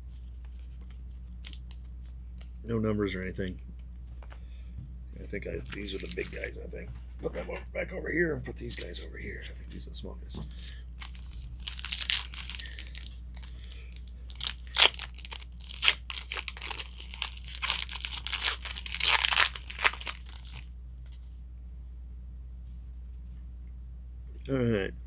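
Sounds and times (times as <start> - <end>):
foil wrapper crinkling and tearing: 1.3 - 1.8, 5.5 - 6.5, 11.0 - 20.7.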